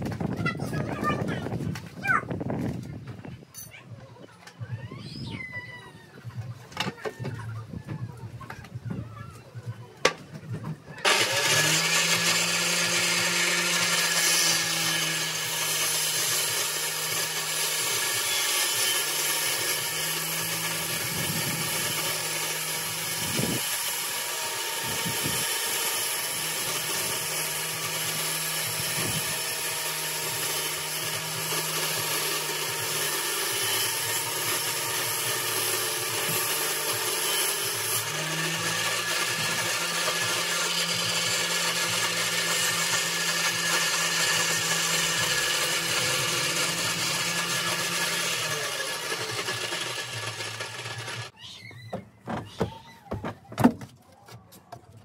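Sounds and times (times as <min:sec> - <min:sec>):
power tool working wood: 0:11.0 - 0:51.4.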